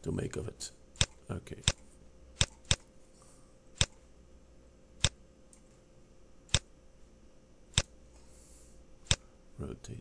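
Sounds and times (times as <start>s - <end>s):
computer mouse clicks: 1.0s - 2.9s, 3.8s - 4.0s, 7.7s - 7.9s, 9.0s - 9.2s.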